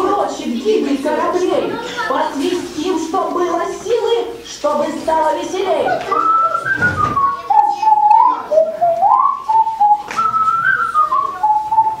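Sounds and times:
person whistling a tune: 6.1 - 12.0.

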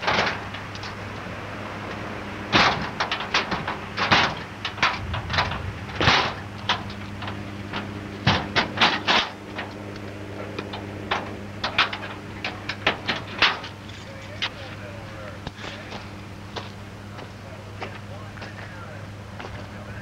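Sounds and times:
vehicle ride hum: 0.0 - 20.0
clattering knocks and rattles: 2.5 - 9.8, 10.4 - 14.7.

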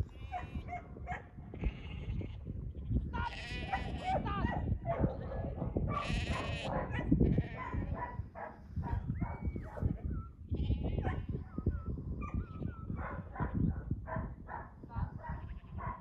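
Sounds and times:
sheep bleating: 3.1 - 4.2, 6.0 - 8.0.

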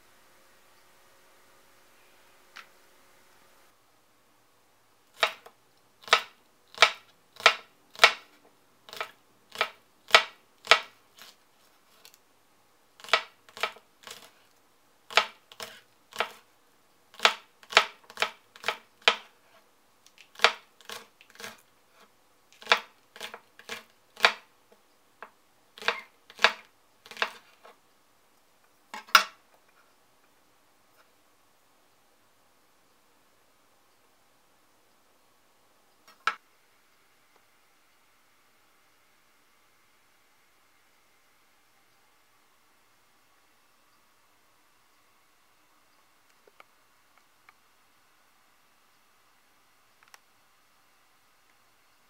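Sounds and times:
knife chopping on cutting board: 5.2 - 8.3, 8.9 - 11.4, 13.0 - 14.4, 15.1 - 16.4, 17.2 - 19.3, 20.4 - 21.6, 22.6 - 24.5, 25.8 - 27.5.

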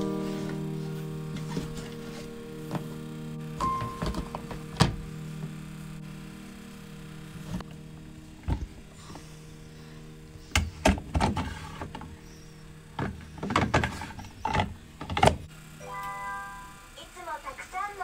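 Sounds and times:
low steady hum: 0.0 - 18.0
plastic clicks and knocks: 13.0 - 15.4.

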